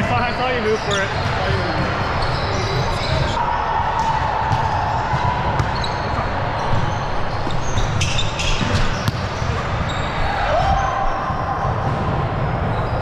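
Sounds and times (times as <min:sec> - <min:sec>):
volleyballs bouncing on gym floor: 0:00.4 - 0:13.0
shoe squeaks: 0:00.6 - 0:03.4, 0:05.6 - 0:10.3.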